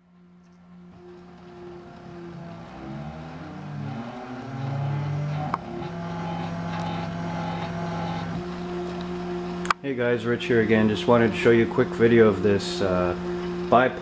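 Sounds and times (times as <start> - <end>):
constant hum: 0.0 - 14.0
stepper motors whining: 0.5 - 14.0.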